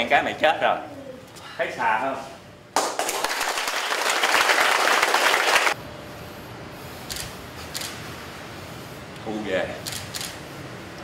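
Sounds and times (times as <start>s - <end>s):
group clapping: 2.8s - 5.8s.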